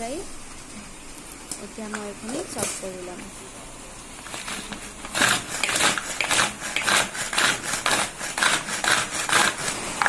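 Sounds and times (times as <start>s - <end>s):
hand food chopper chopping: 4.6s - 9.8s.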